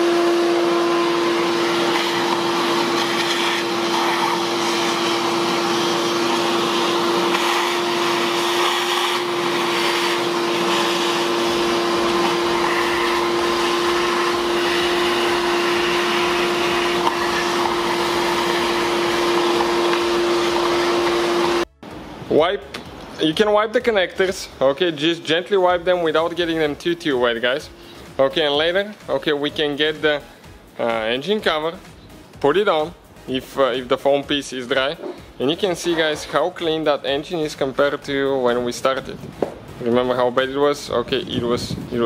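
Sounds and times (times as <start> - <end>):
shop vac running: 0.0 - 22.3, 32.5 - 39.5.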